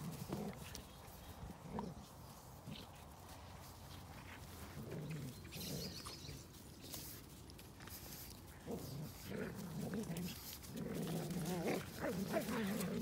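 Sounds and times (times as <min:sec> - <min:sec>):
paws scuffling on frosty grass: 0:00.0 - 0:13.0
dog growling: 0:08.6 - 0:13.0.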